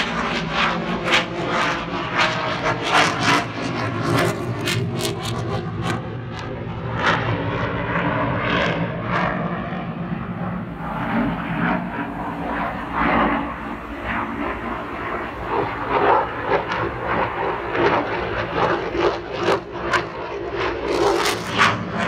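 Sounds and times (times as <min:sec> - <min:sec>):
jet engine crackling: 0:00.0 - 0:22.0
jet engine rumble: 0:00.0 - 0:22.0.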